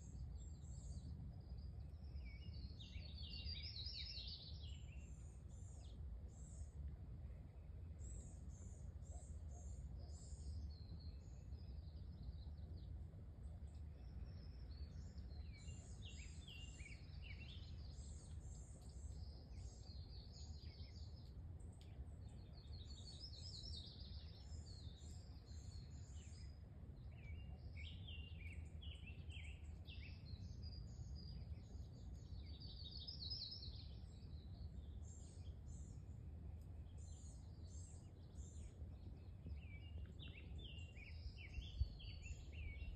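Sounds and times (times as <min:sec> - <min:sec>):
faint low rumble: 0:00.0 - 0:42.9
songbirds singing and chirping: 0:00.0 - 0:42.9.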